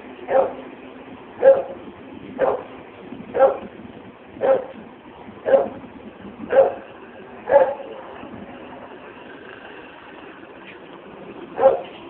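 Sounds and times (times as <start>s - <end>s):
dog barking: 0.3s - 0.6s, 1.4s - 1.8s, 2.4s - 2.7s, 3.4s - 3.6s, 4.4s - 4.8s, 5.5s - 5.8s, 6.5s - 6.8s, 7.4s - 7.9s, 11.6s - 12.0s.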